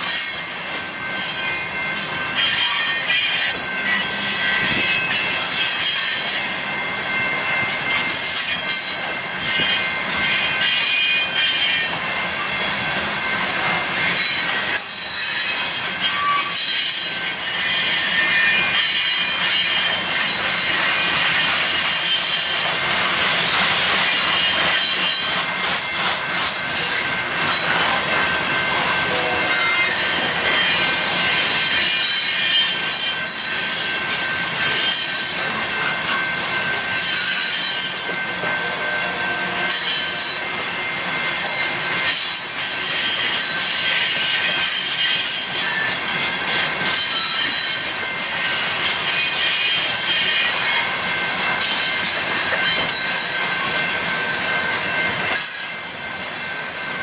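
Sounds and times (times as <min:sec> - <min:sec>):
high-pitched wheel squeal: 0:00.0 - 0:00.5, 0:01.1 - 0:06.6, 0:14.0 - 0:22.6, 0:29.1 - 0:35.6, 0:36.6 - 0:46.0, 0:46.9 - 0:50.8, 0:51.6 - 0:56.0
freight train wheels rolling on rail: 0:00.0 - 0:57.0.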